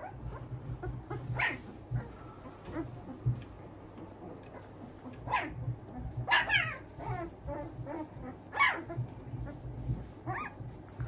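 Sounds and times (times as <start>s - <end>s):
puppies whining and yelping: 0.0s - 10.9s.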